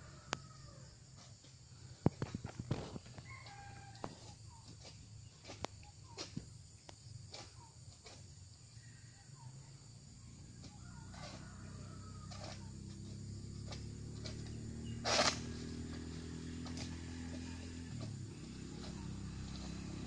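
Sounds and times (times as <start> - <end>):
rooster crowing faintly: 0.0 - 1.1, 3.2 - 4.5, 10.6 - 13.0.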